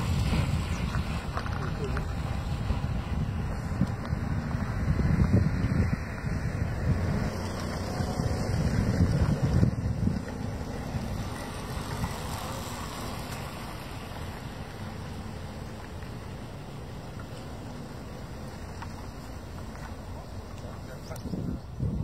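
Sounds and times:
wind buffeting microphone: 0:00.0 - 0:15.6, 0:20.0 - 0:22.0.

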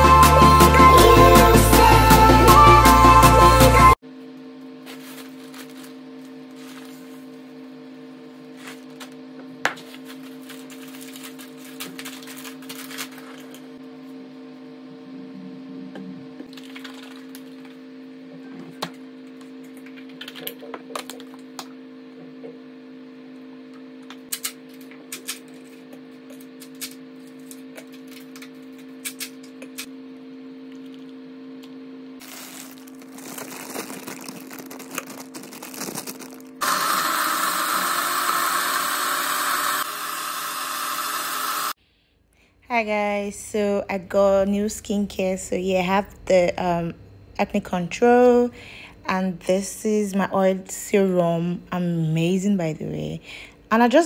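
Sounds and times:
blender running: 0:00.0 - 0:05.2, 0:29.8 - 0:41.8.

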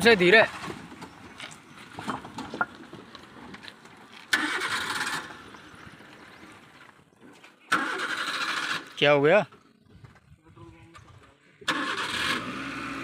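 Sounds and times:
van engine at low revs: 0:00.0 - 0:06.8, 0:11.6 - 0:13.0.

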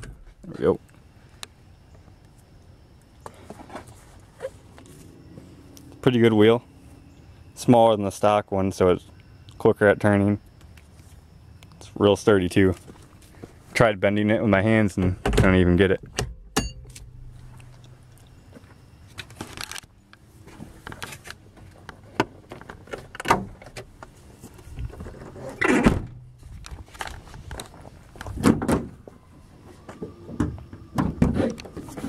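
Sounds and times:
car door opening and shutting: 0:25.0 - 0:26.3, 0:28.2 - 0:29.0.

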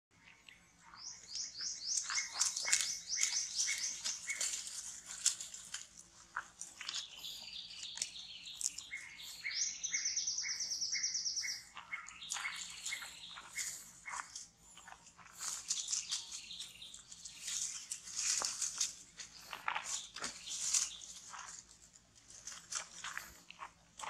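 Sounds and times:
birds chirping: 0:00.1 - 0:24.0
light rustles and clicks: 0:02.0 - 0:07.1.

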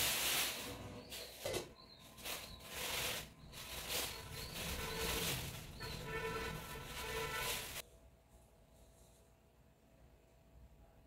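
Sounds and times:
plastic packaging crinkling: 0:00.0 - 0:07.8.

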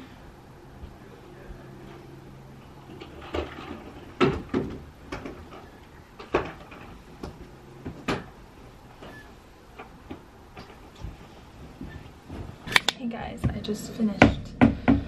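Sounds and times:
household knocks and clunks: 0:02.9 - 0:08.4.

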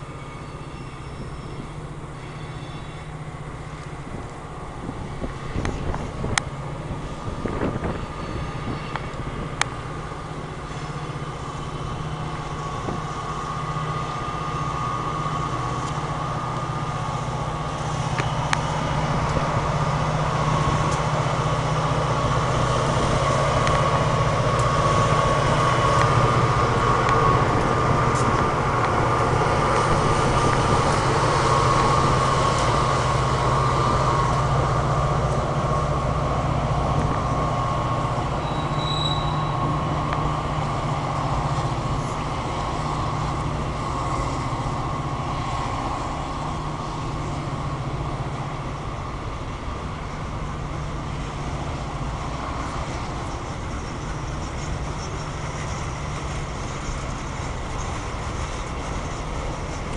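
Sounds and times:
high squeal: 0:00.0 - 0:03.8, 0:07.0 - 0:09.2, 0:09.9 - 0:47.5
diesel locomotive engines rumbling: 0:00.0 - 0:59.9
freight cars rolling: 0:00.0 - 0:59.9.

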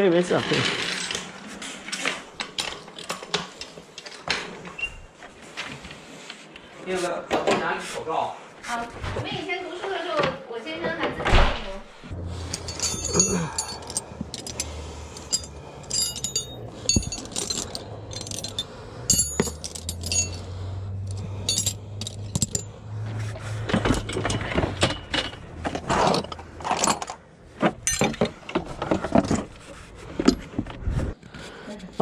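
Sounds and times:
metal wrenches clinking: 0:12.2 - 0:30.6
dull knocks and rummaging: 0:12.2 - 0:31.3.

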